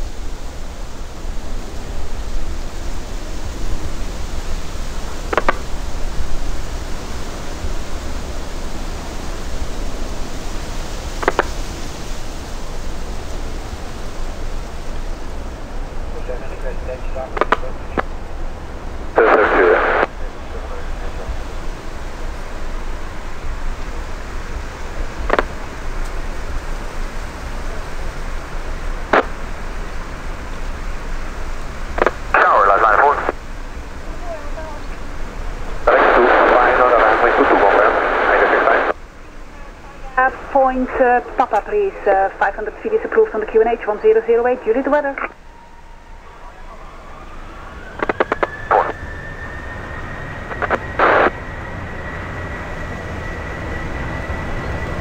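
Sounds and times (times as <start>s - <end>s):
distant jet engines rushing: 0.0s - 55.0s
radio crackle: 4.4s - 6.0s, 11.2s - 11.6s, 16.1s - 18.4s, 19.1s - 26.4s, 28.9s - 29.8s, 31.8s - 45.4s, 47.2s - 51.5s
radio clicks: 5.3s - 5.6s, 11.2s - 11.5s, 17.3s - 18.1s, 25.2s - 25.6s, 29.1s - 29.4s, 32.0s - 33.4s, 41.4s - 43.5s, 48.0s - 48.9s, 50.5s - 51.3s
jet engines spooling up: 40.2s - 55.0s.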